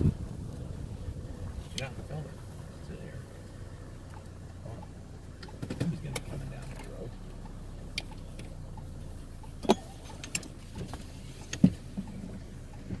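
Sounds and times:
low vehicle rumble: 0.0 - 13.0
sharp clicks and knocks: 4.1 - 13.0.

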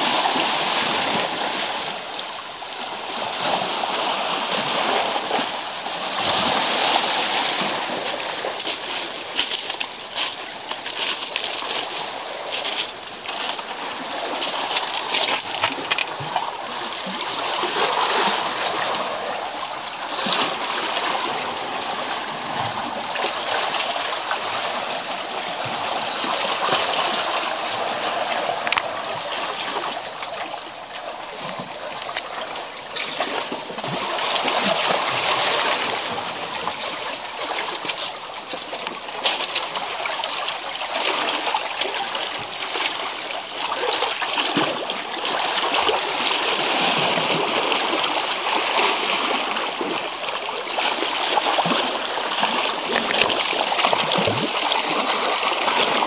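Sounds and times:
water trickling over rocks: 0.1 - 5.0, 5.7 - 56.0
sharp water splashes: 26.3 - 56.0.

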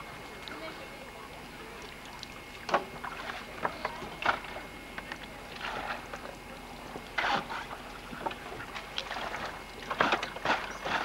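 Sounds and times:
water sloshing: 0.0 - 11.0
water splashing: 0.0 - 11.0.

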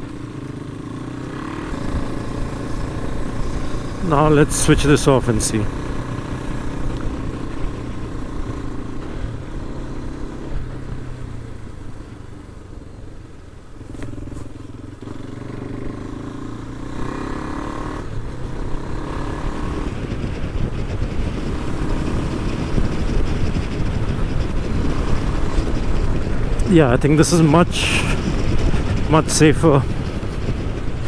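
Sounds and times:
motorcycle engine: 0.0 - 31.0
wind rush: 18.0 - 31.0.

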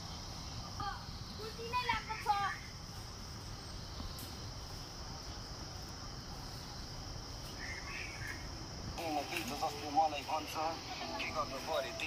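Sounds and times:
insects droning: 0.0 - 12.0
rustling and handling noise: 9.0 - 10.2.

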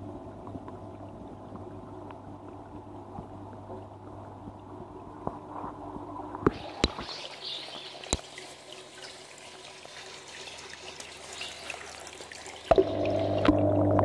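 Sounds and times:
steady low hum: 0.0 - 7.0, 12.7 - 14.0
water trickling and dripping: 0.0 - 14.0.

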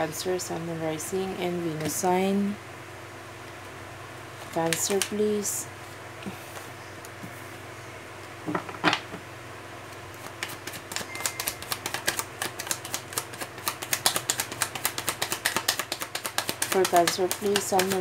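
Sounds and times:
cards shuffled by hand: 4.4 - 5.2, 10.0 - 18.0.

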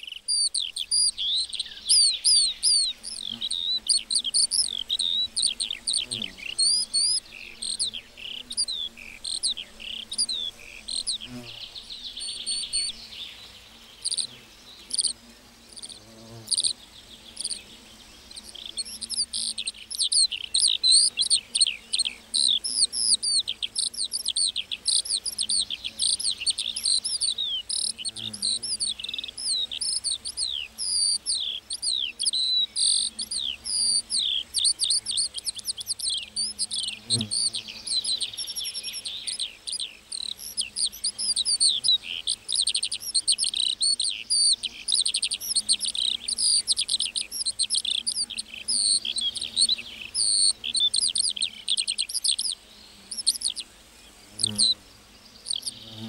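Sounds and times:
lark singing rapid chirps and trills: 0.0 - 56.0.

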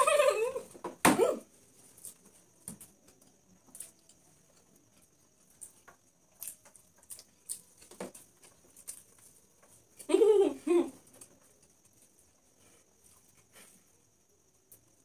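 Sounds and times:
chewing: 3.1 - 10.1.

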